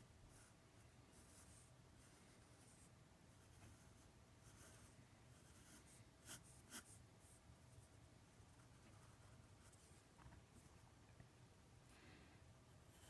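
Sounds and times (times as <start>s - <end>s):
marker scratching on paper: 1.2s - 7.4s.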